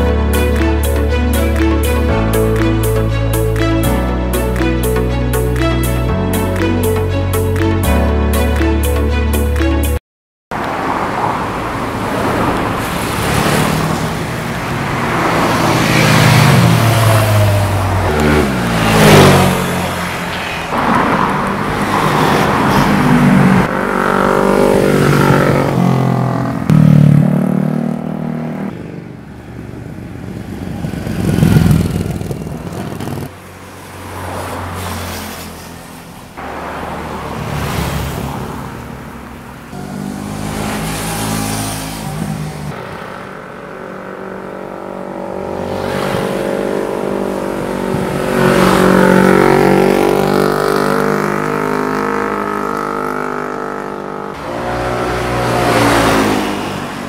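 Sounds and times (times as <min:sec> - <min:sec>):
motorcycles passing and revving: 0:10.5 - 0:57.0.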